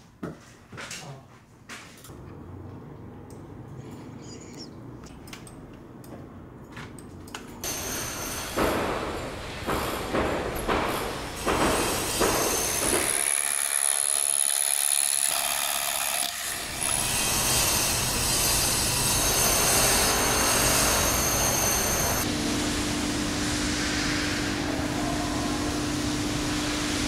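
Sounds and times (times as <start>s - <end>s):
power tool on concrete: 7.6s - 9.9s, 10.9s - 22.3s
machinery noise: 7.6s - 13.4s, 16.5s - 27.0s
crane low hum: 16.6s - 27.0s.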